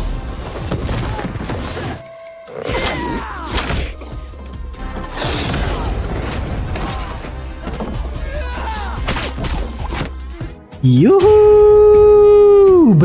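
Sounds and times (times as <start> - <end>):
dramatic film score: 0.0 - 13.0.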